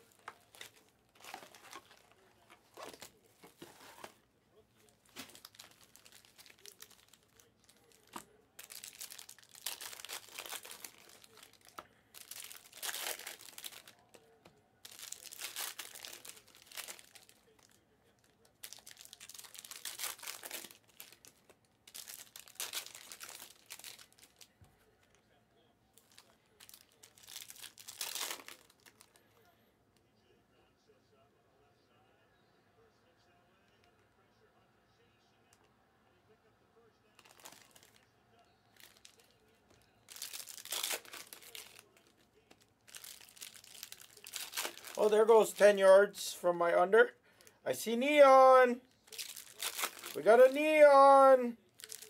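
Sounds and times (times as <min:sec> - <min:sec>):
plastic wrapping torn and crinkled: 0:00.0 - 0:04.2, 0:04.9 - 0:14.2, 0:14.8 - 0:24.6, 0:26.0 - 0:29.2, 0:37.2 - 0:38.0, 0:38.8 - 0:45.6, 0:49.0 - 0:52.0.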